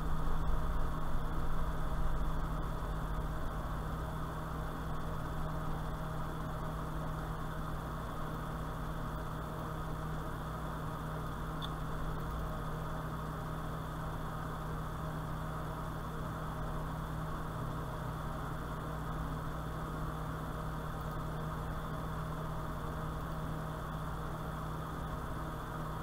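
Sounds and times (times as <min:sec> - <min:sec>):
low drone hum with hiss: 0:00.0 - 0:26.0.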